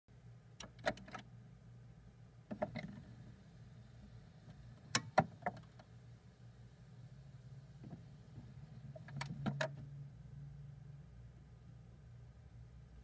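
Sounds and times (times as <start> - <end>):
record player hum: 0.1 - 13.0
sharp clicks and knocks: 8.9 - 9.8.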